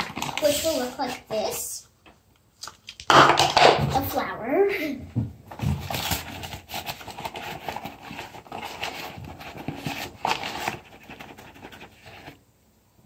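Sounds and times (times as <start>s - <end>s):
paper bag rustling: 0.0s - 1.3s, 5.5s - 12.4s.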